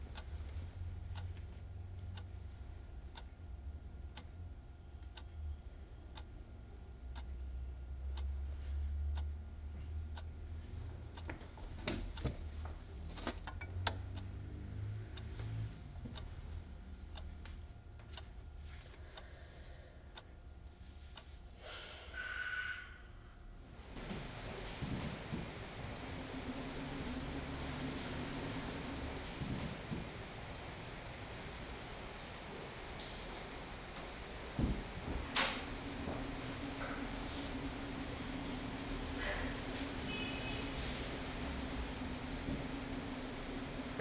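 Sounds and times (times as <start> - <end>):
low room hum: 0.0 - 44.0
clock ticking: 1.1 - 1.4, 2.0 - 2.3, 8.0 - 8.4, 9.1 - 9.4, 10.1 - 10.3, 13.2 - 15.6
high ringing tones: 22.1 - 23.5.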